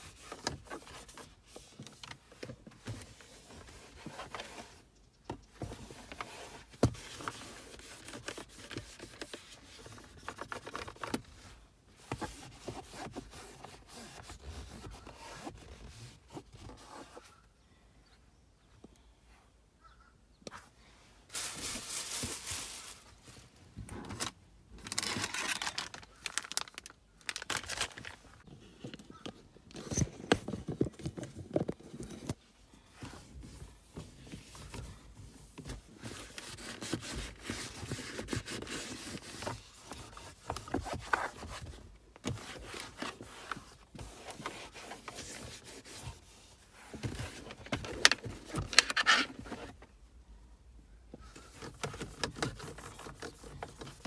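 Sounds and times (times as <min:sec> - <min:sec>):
cloth scrubbing plastic console: 0:05.7 - 0:11.3, 0:11.9 - 0:17.4, 0:33.0 - 0:49.8, 0:51.3 - 0:54.0.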